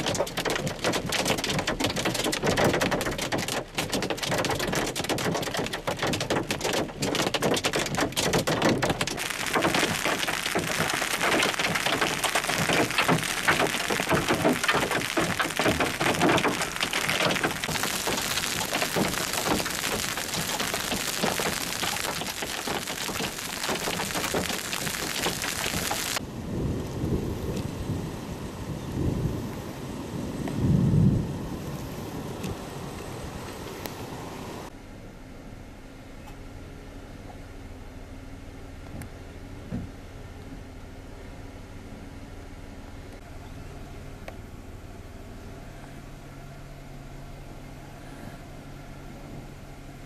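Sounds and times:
hail and rain drumming on car: 0.0s - 26.2s
hiss of hail and rain: 0.0s - 34.7s.

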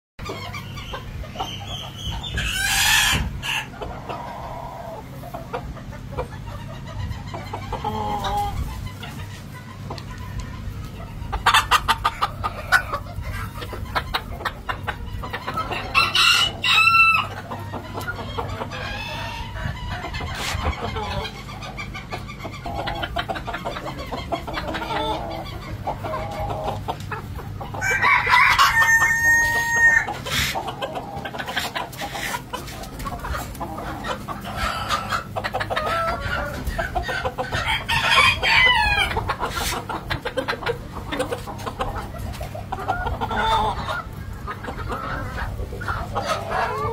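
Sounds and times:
chickens clucking: 0.2s - 46.9s
rooster crowing: 15.9s - 17.3s, 27.8s - 30.1s.

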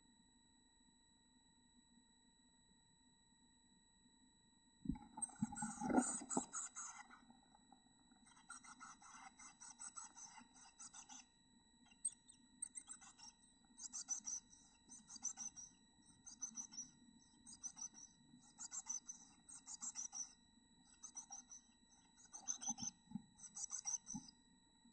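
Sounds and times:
nestlings begging calls: 8.3s - 11.2s, 12.0s - 16.9s, 17.5s - 20.3s, 22.2s - 22.9s, 23.5s - 24.2s.

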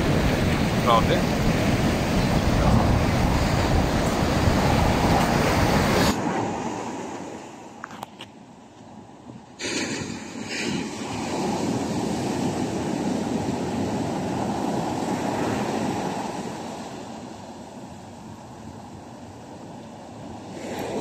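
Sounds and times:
surf breaking on beach: 0.0s - 7.8s, 9.6s - 17.6s, 20.3s - 21.0s
wind on microphone: 0.0s - 8.3s.

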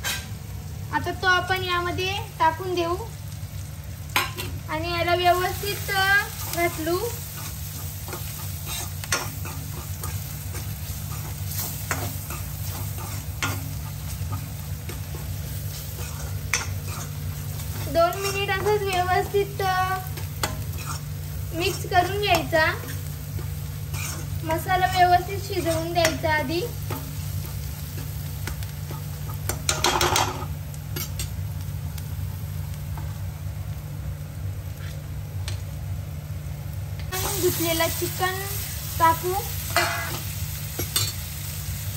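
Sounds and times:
low sizzle of frying: 0.0s - 41.9s
spoon scraping pan: 5.7s - 30.4s.

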